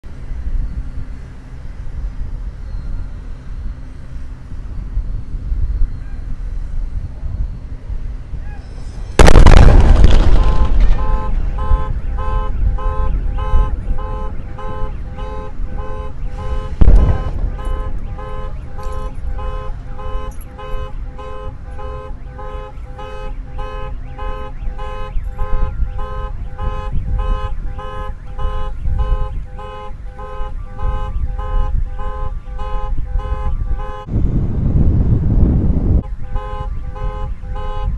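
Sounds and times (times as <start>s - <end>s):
car alarm beeping: 8.8s - 34.1s, 36.0s - 37.9s
loud explosion boom: 9.1s - 14.0s, 16.3s - 19.5s.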